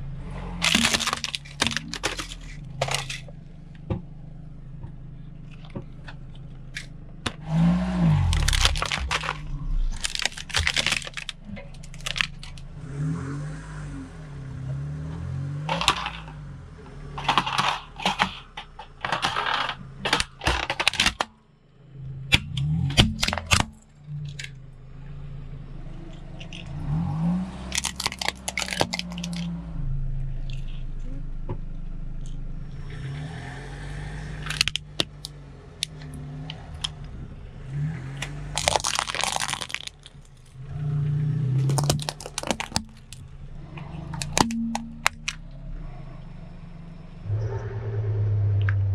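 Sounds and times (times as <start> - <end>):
car engine idling: 0.0 - 48.9
sharp cracks and crunches: 0.5 - 3.9, 5.4 - 12.7, 15.1 - 21.5, 22.3 - 24.6, 26.1 - 29.6, 34.3 - 37.2, 37.8 - 45.6
tyre crushing plastic objects: 0.6 - 3.4, 6.7 - 12.6, 15.7 - 16.4, 17.1 - 21.3, 22.5 - 23.8, 27.7 - 29.5, 34.4 - 36.0, 38.5 - 40.5, 41.5 - 43.3, 44.1 - 45.4.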